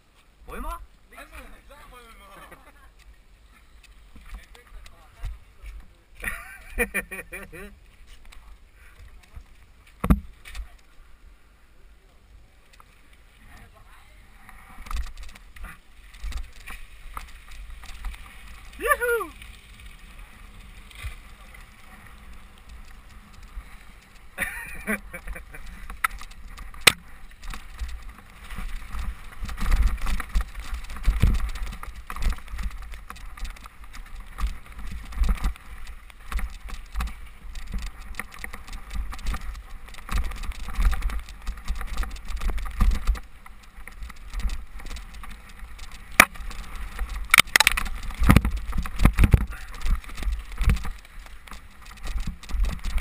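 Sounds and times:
mountain bike rattling: 13.0s - 53.0s.

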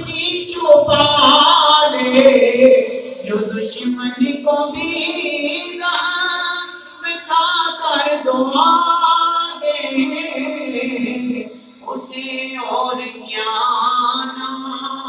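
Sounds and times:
man singing unaccompanied: 0.0s - 15.0s.

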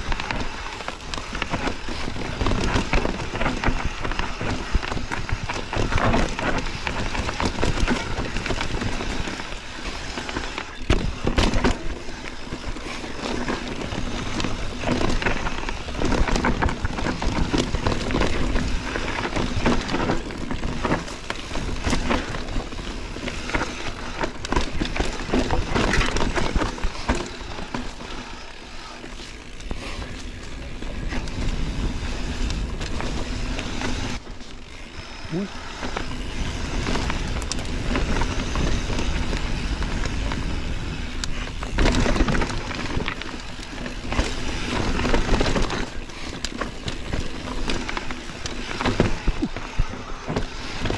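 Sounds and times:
bike knocks and rattles: 0.0s - 50.9s
bike tyre rumble on dirt: 0.0s - 50.9s.

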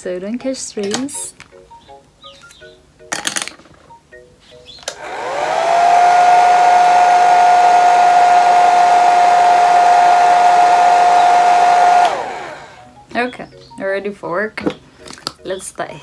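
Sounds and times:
hair dryer switch click: 4.8s - 5.5s, 11.6s - 12.8s
hair dryer motor whine: 4.8s - 12.9s
rushing air: 5.0s - 12.8s.

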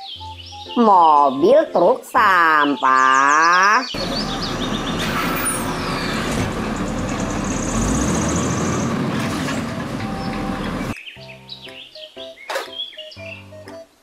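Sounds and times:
garbage truck hydraulic arm running: 4.0s - 11.0s.

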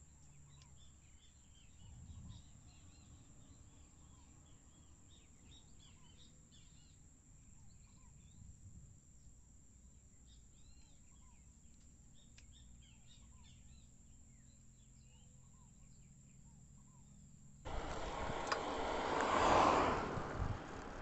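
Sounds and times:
birds chirping: 17.7s - 21.0s
loud rushing noise: 17.7s - 21.0s.

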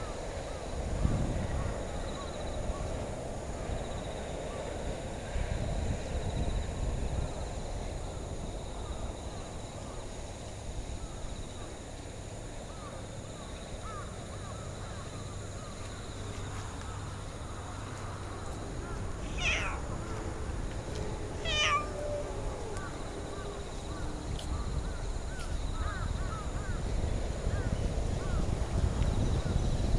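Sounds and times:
wind rumble on microphone: 0.0s - 13.0s, 13.9s - 29.9s
harsh animal calls: 19.2s - 19.9s, 21.4s - 22.1s.

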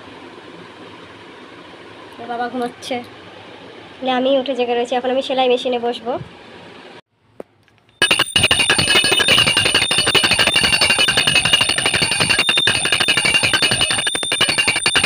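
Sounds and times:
brass hand bell ringing fast: 8.0s - 15.0s.

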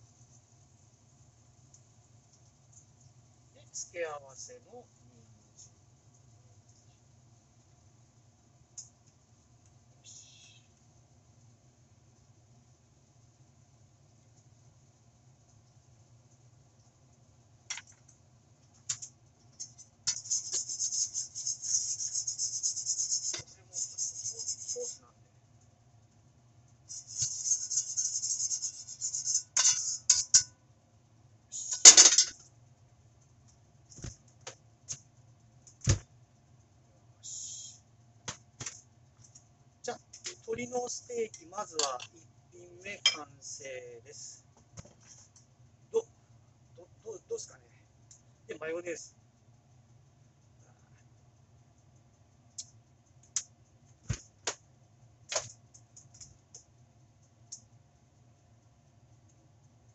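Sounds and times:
light knocks and thumps: 35.8s - 36.1s.

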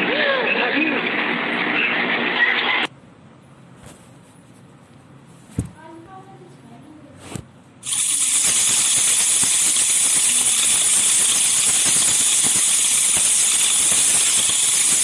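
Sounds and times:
loud steady hiss: 7.8s - 15.0s.

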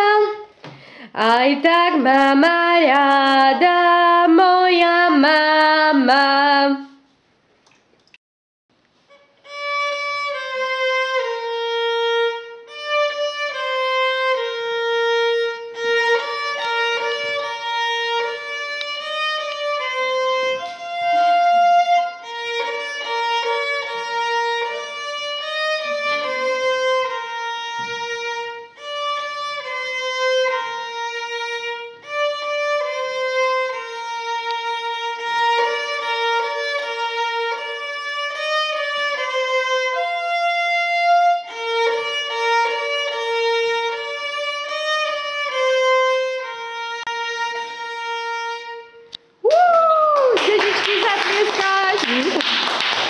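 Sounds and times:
solo violin melody: 0.0s - 0.6s, 9.1s - 49.4s.

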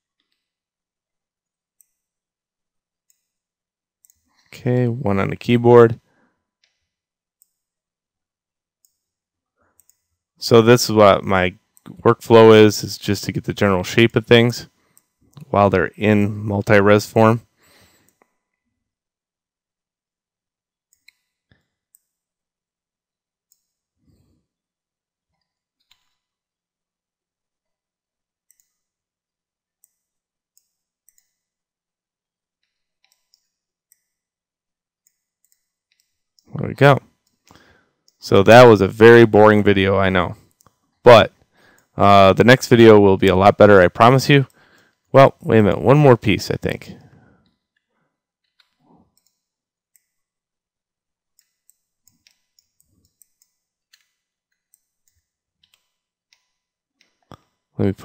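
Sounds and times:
computer mouse clicks: 1.8s - 2.1s, 3.1s - 3.3s, 6.6s - 7.7s, 8.8s - 9.1s, 9.8s - 10.1s, 20.9s - 22.2s, 23.5s - 23.8s, 25.4s - 26.3s, 28.5s - 28.9s, 29.8s - 31.5s, 32.6s - 34.2s, 35.0s - 36.5s, 48.4s - 50.3s, 51.4s - 57.6s.

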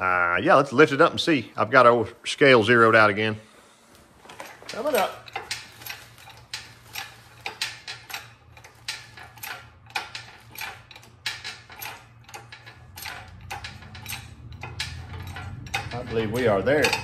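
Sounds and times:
metallic clicks of engine hoist: 4.3s - 17.0s.

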